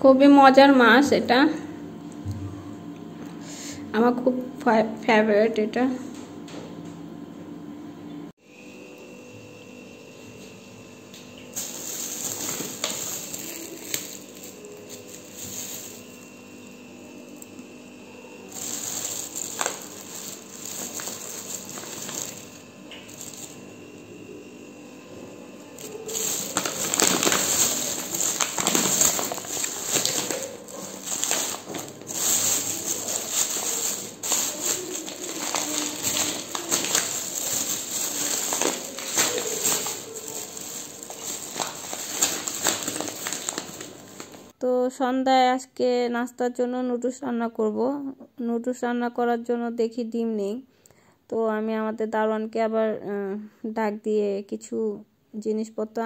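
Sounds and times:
plastic bag crinkling: 0:11.5 - 0:17.5, 0:18.3 - 0:24.0, 0:25.7 - 0:44.5.

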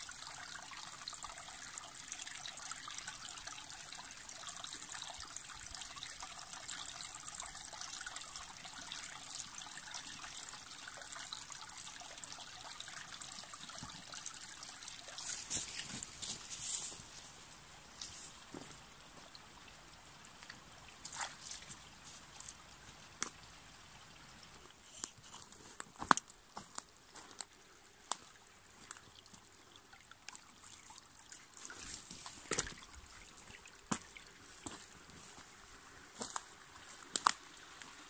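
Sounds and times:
stream trickling: 0:00.0 - 0:38.0
footsteps on twigs and mud: 0:15.2 - 0:17.4, 0:25.0 - 0:27.5, 0:36.2 - 0:37.4.

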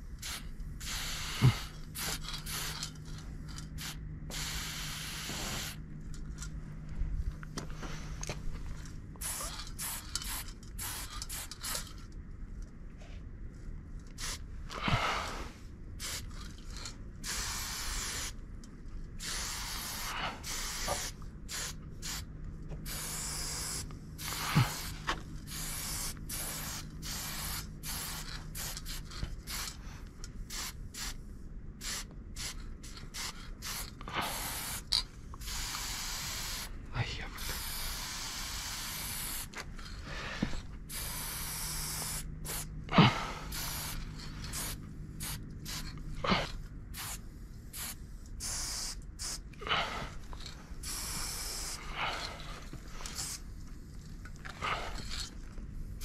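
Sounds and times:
low steady hum: 0:00.0 - 0:56.0
spray paint can hissing: 0:00.2 - 0:05.8, 0:09.2 - 0:12.0, 0:14.1 - 0:14.4, 0:16.0 - 0:18.4, 0:19.2 - 0:29.8, 0:30.4 - 0:31.2, 0:31.8 - 0:36.7, 0:37.4 - 0:39.6, 0:40.9 - 0:42.7, 0:43.5 - 0:46.0, 0:46.9 - 0:49.4, 0:50.8 - 0:51.9, 0:53.0 - 0:53.5.

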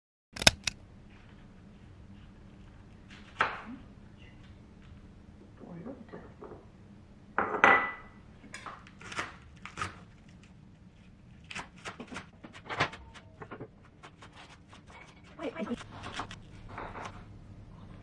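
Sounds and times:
knife chopping on wooden board: 0:00.4 - 0:00.8.

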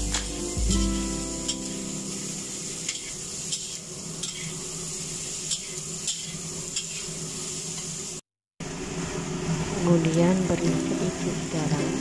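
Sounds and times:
vegetables sizzling in a wok: 0:00.0 - 0:12.0
spatula scraping a wok: 0:00.1 - 0:07.9.

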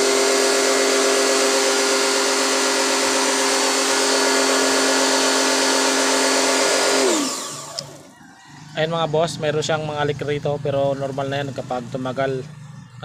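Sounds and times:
pressure washer motor and pump: 0:00.0 - 0:13.0.

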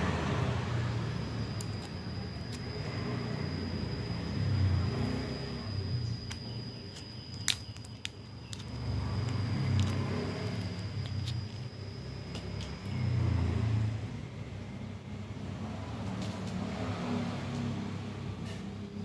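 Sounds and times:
faint high-pitched whine: 0:00.0 - 0:16.0
battery cell clicks: 0:01.4 - 0:02.8, 0:06.1 - 0:13.0.

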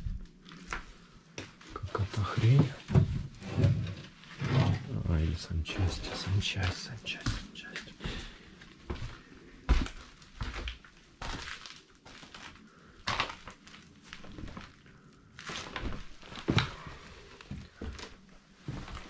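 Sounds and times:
footsteps crunching over rubble: 0:00.0 - 0:01.7, 0:06.6 - 0:19.0.

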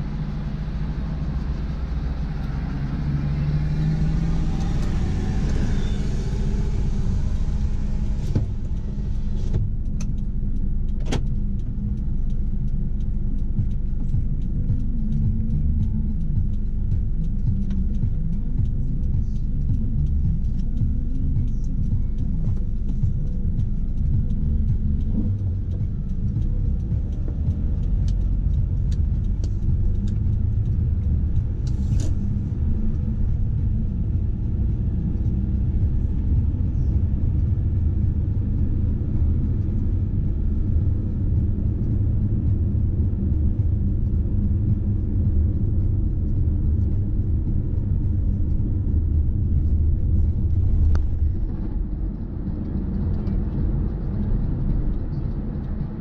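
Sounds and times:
car engine and road rumble: 0:00.0 - 0:56.0
sharp clicks: 0:08.2 - 0:34.2.

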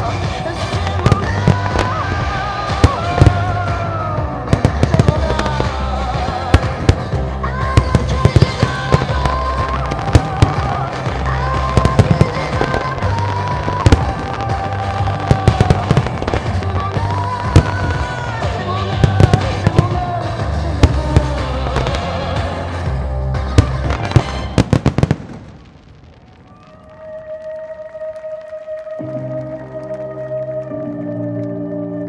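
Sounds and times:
music with heavy bass: 0:00.0 - 0:25.1
fireworks bangs: 0:00.0 - 0:27.9.

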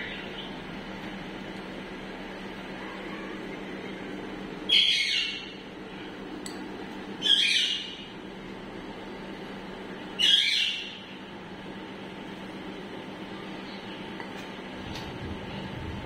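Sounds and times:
steady low hum: 0:00.0 - 0:16.0
parakeet calls: 0:04.7 - 0:05.6, 0:07.2 - 0:08.1, 0:10.2 - 0:11.1.

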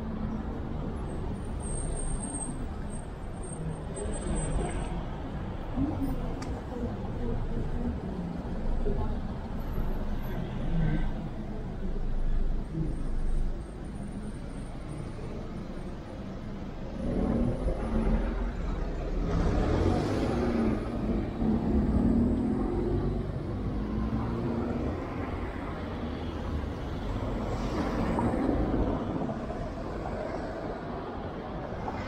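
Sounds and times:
cars driving past: 0:14.6 - 0:32.0.

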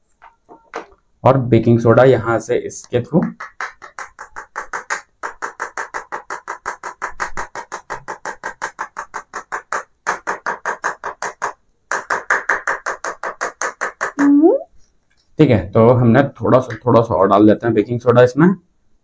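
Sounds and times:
rapid tapping on a funnel: 0:02.8 - 0:14.2.

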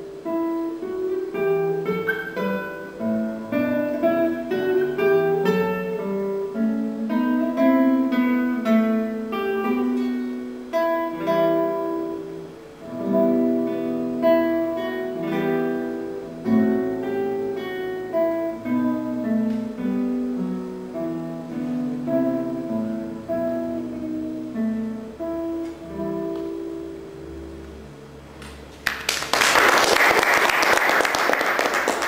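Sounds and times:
classical guitar fingerstyle: 0:00.0 - 0:28.8
audience applause: 0:28.8 - 0:32.0.

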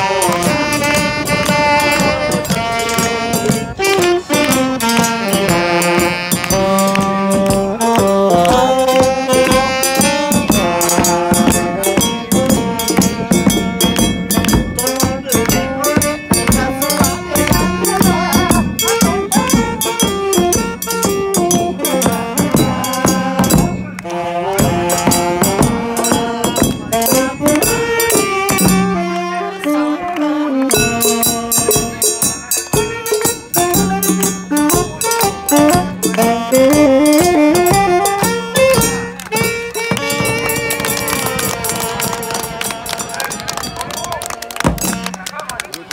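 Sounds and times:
small drums and gong: 0:00.0 - 0:29.8, 0:30.6 - 0:45.2
saxophone melody: 0:00.0 - 0:45.8
large bass drum: 0:10.4 - 0:23.9.

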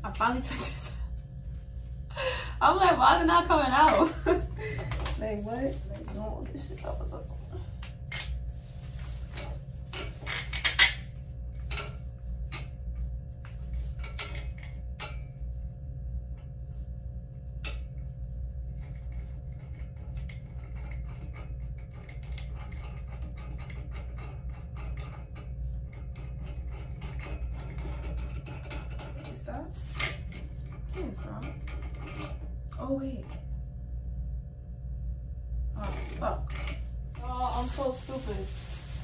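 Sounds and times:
low hum: 0:00.0 - 0:39.0.

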